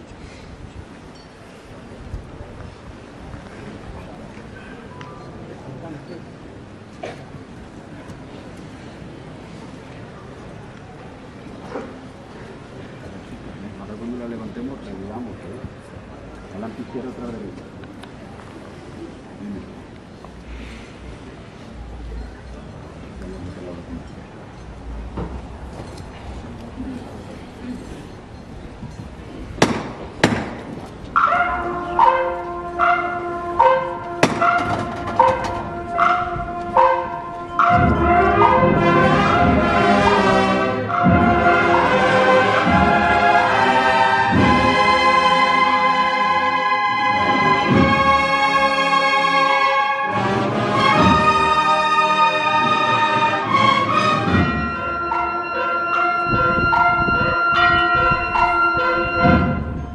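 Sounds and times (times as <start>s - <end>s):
sharp knocks: 29.6s - 30.8s, 34.2s - 36.2s
bells ringing in a peal: 31.2s - 49.4s, 54.3s - 59.9s
processional brass band playing: 31.2s - 59.9s
low drum beats: 31.5s - 45.2s, 47.1s - 48.4s, 50.8s - 51.7s, 53.9s - 59.9s.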